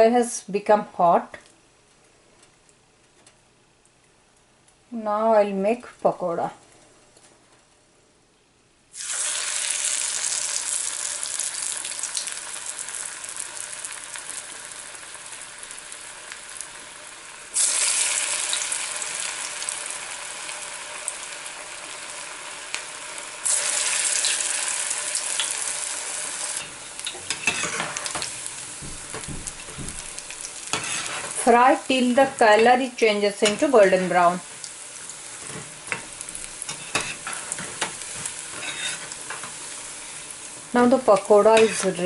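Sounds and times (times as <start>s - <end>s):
batter deep-frying in oil: 8.9s - 42.0s
skimmer scraping in pan: 26.2s - 32.8s, 33.4s - 42.0s.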